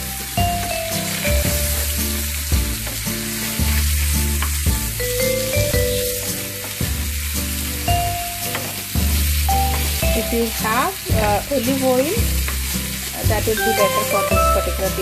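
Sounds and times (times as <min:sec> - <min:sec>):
background music: 0:00.0 - 0:15.0
chicken sizzling in hot oil: 0:00.0 - 0:15.0.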